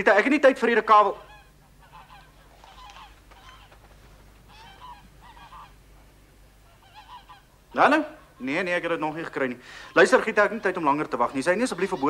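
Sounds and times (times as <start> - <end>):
geese honking faintly: 0.9 - 12.0.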